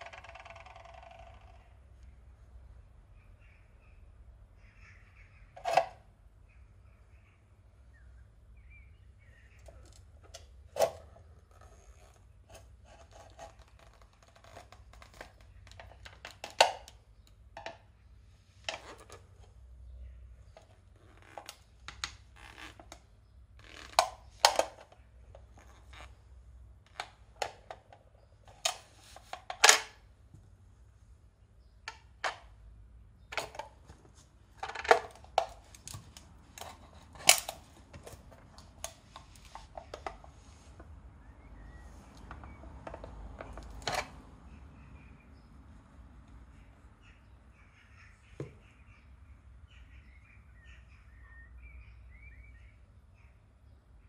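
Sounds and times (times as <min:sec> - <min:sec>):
clogs crushing tin can on concrete: 0:09.6 - 0:17.0, 0:18.7 - 0:19.2, 0:23.6 - 0:26.1, 0:34.5 - 0:40.2.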